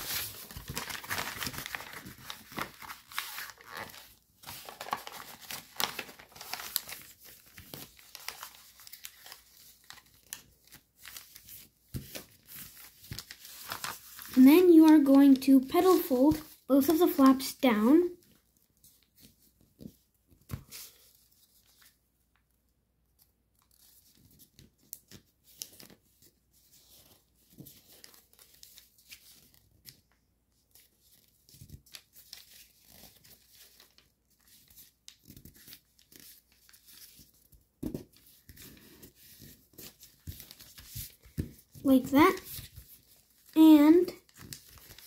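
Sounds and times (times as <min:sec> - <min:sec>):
foil paper crinkling: 0:00.0 - 0:17.5, 0:38.2 - 0:45.0.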